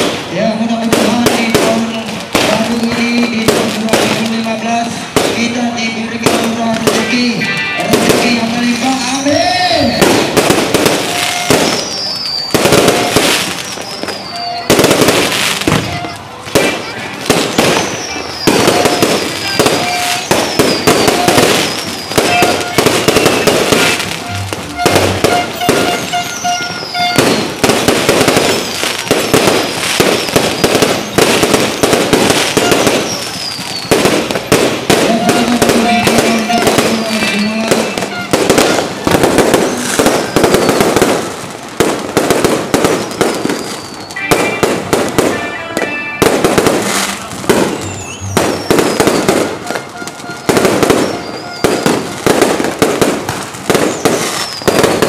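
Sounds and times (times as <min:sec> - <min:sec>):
fireworks bangs and crackling: 0:00.0 - 0:55.0
falling firework whistles: 0:09.7 - 0:55.0.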